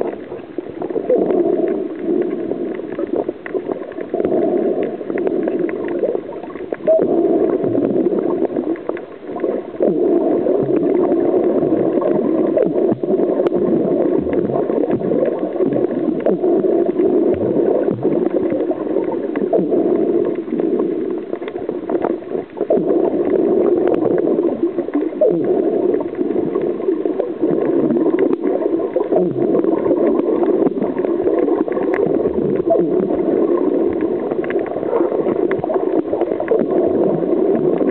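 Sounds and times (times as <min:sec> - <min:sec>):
muffled underwater gurgling: 0:00.0 - 0:37.9.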